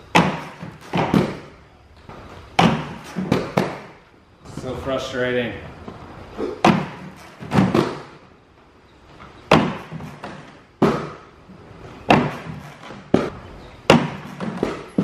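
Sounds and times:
skates knocking on wood and concrete: 0.1s - 1.6s, 2.6s - 4.0s, 6.6s - 8.2s, 9.5s - 15.0s.

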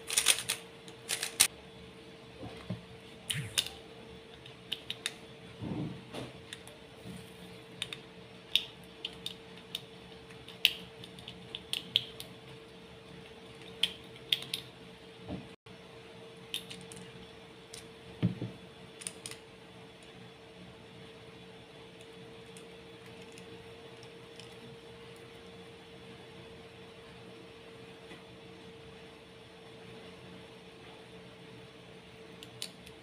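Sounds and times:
faint steady hum: 0.0s - 33.0s
plastic cube pieces clicking: 0.1s - 1.5s.

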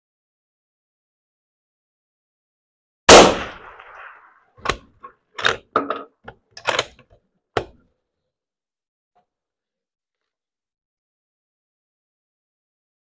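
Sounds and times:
rifle shot echoing: 3.1s - 4.8s
rifle bolt clacking: 4.6s - 7.8s.

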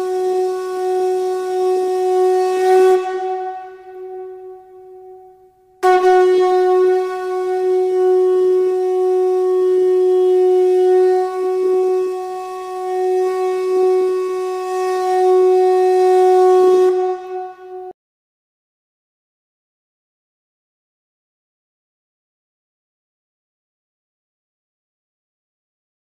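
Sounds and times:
conch shell trumpet blowing: 0.0s - 17.9s.

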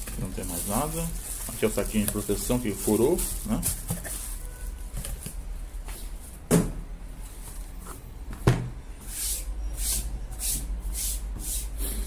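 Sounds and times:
cardboard box rustling: 0.1s - 5.3s.

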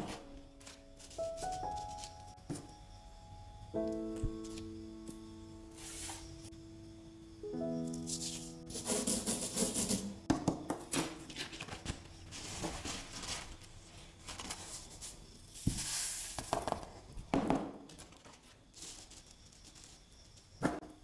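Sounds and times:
paper rustling: 0.0s - 2.4s, 11.0s - 15.8s, 18.0s - 20.1s
sand hissing off paper: 5.7s - 6.5s, 8.1s - 10.1s, 14.6s - 16.6s
sand scraped and sprinkled: 5.8s - 6.3s, 12.3s - 16.5s.

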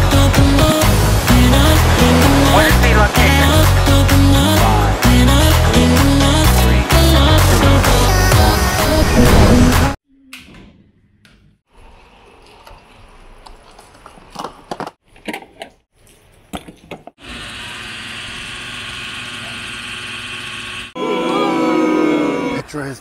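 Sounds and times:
fuel pump humming and whining: 17.2s - 20.9s.

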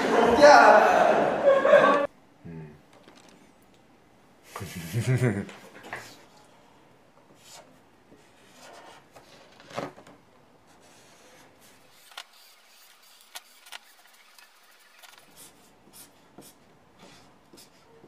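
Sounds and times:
marker scratching on paper: 8.3s - 9.0s, 10.7s - 17.9s.

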